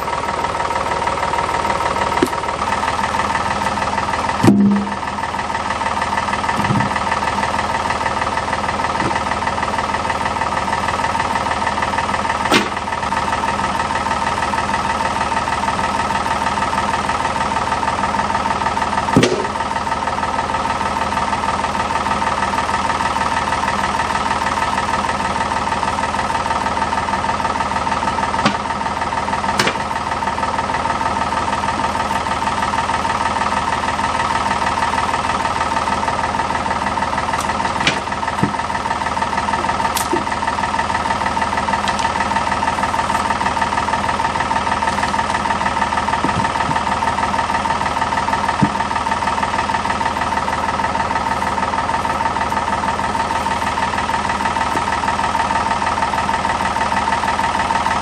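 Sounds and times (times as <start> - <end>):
backhoe engine idling: 0.0 - 58.0
logs landing in steel bucket: 2.1 - 2.5, 3.6 - 5.2, 6.5 - 7.1, 9.0 - 9.4, 12.4 - 13.0, 19.1 - 19.8, 28.3 - 30.0, 37.3 - 38.8, 39.8 - 40.4, 46.1 - 47.2, 48.4 - 49.1.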